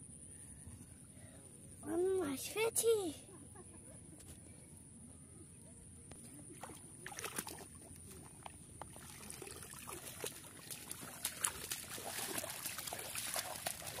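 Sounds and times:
muddy water splashing: 6.3 - 14.0.

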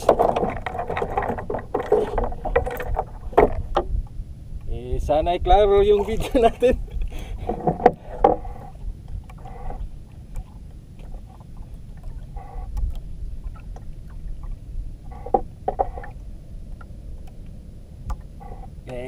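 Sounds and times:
water slapping against boat: 0.0 - 4.0
water lapping against boat hull: 0.0 - 4.2, 5.7 - 19.0
low wind rumble: 0.0 - 19.0.

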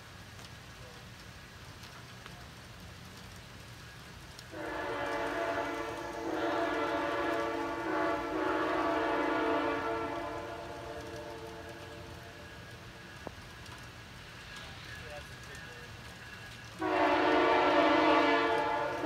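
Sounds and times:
locomotive air horn chord: 4.5 - 12.3, 16.8 - 19.0.

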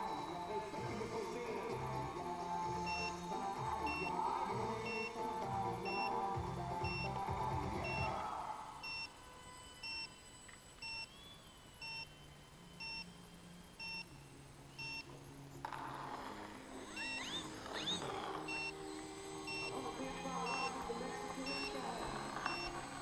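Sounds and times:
short rising whines: 0.0 - 23.0
short high electronic beeps: 16.9 - 18.8.

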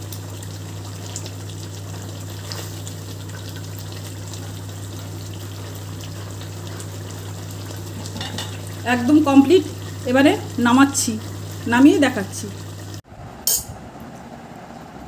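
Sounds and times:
curry bubbling in a wok: 0.0 - 11.7.

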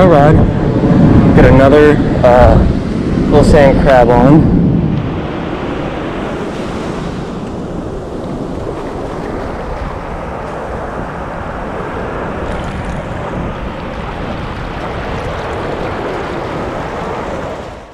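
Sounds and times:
ocean surf breaking: 0.0 - 17.9.

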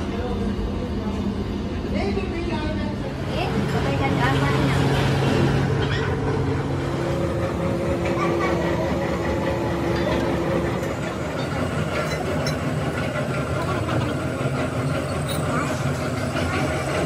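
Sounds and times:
workshop machinery droning: 0.0 - 17.0
steel knocking: 9.2 - 15.5.

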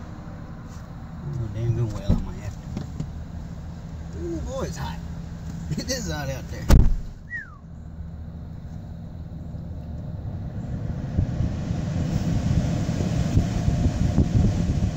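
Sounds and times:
rushing fluttering air in truck cab: 0.0 - 14.9
short falling chirp: 7.2 - 7.7.

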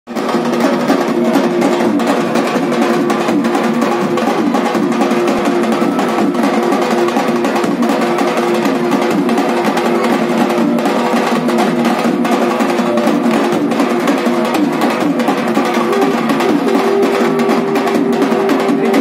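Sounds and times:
fast drumming with sticks: 0.1 - 19.0
wavering melody line: 15.8 - 19.0.

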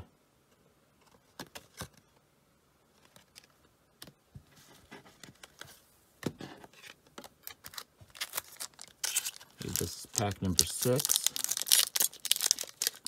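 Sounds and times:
soft card rustles: 2.9 - 5.8, 6.5 - 13.0.

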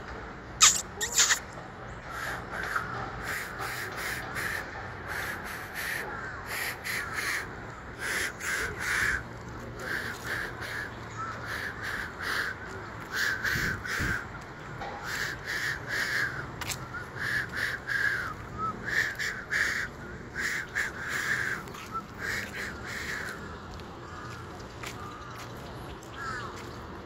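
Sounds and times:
birds calling: 0.6 - 27.0.

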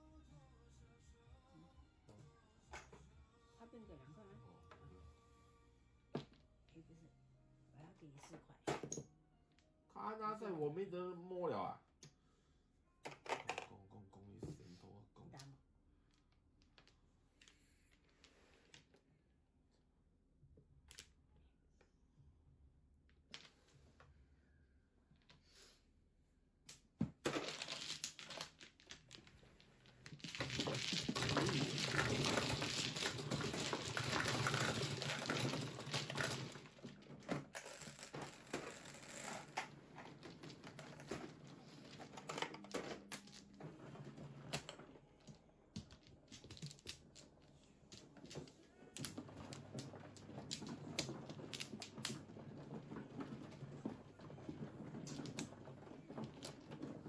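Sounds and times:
low hum of table: 27.0 - 57.0
mahjong tiles clattering: 27.3 - 43.6.

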